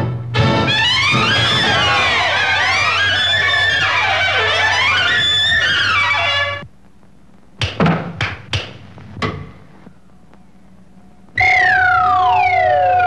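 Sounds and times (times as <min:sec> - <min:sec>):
jazz music: 0:00.0 - 0:06.7
tone sliding downward: 0:00.7 - 0:06.6, 0:11.4 - 0:13.0
sharp knocks: 0:07.6 - 0:09.6.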